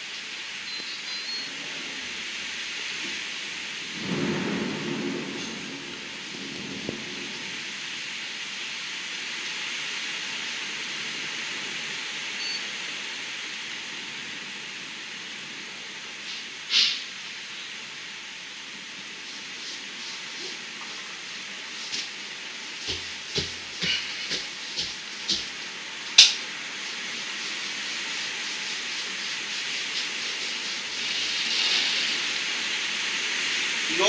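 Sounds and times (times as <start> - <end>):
rain and wind against window: 1.4 - 34.0
thunder rumble: 3.2 - 8.9.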